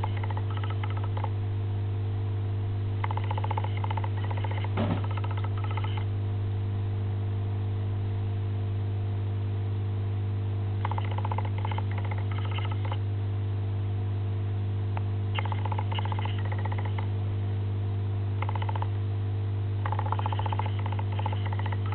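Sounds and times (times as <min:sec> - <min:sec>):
rapid high clicking: 0:00.0 - 0:01.3, 0:03.0 - 0:06.0, 0:10.8 - 0:13.0, 0:15.4 - 0:17.1, 0:18.4 - 0:18.9, 0:19.8 - 0:21.9
low electrical hum: 0:00.0 - 0:21.9.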